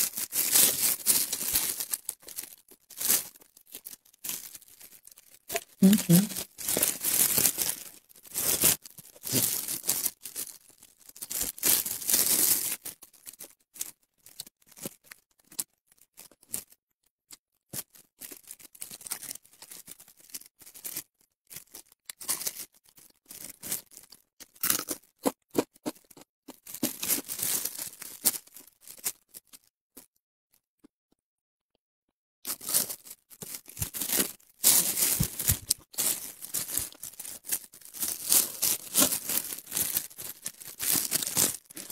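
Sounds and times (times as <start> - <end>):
crunchy bites of crisp fish: 18.2 - 30.1.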